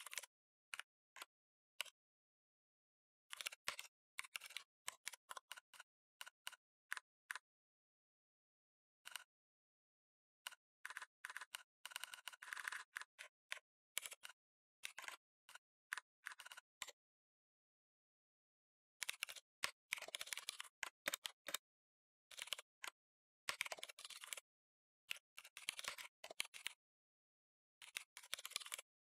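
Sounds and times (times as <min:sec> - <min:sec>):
typing on computer keyboard: 0:10.8 - 0:15.2, 0:19.0 - 0:21.6, 0:23.5 - 0:24.4, 0:27.8 - 0:28.9.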